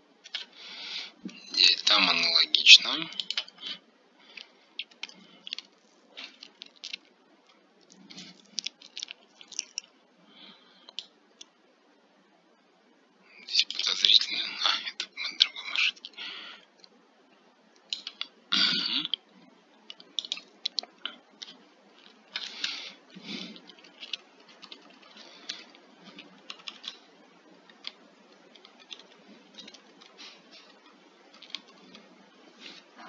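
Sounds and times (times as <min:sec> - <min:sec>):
computer mouse clicks: 0:17.8 - 0:18.3, 0:19.9 - 0:22.8, 0:23.5 - 0:32.1.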